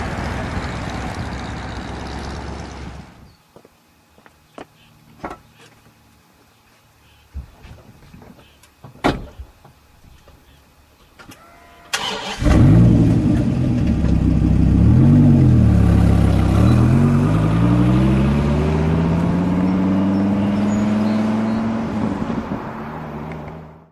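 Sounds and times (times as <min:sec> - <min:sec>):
car engine starting and revving: 0:11.9 - 0:23.9.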